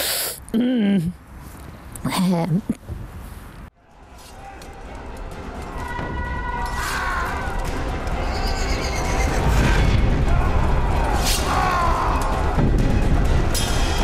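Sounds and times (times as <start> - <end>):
horses whinnying: 8.2 - 9.6.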